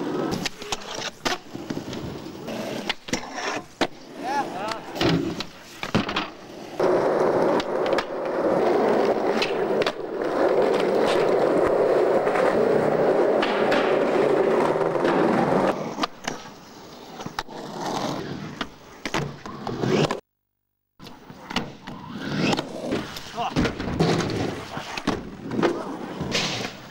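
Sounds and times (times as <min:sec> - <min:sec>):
skateboard wheels rolling on pavement: 0:00.0 - 0:20.2, 0:21.0 - 0:26.9
skateboard clacking on ground: 0:13.3 - 0:16.5.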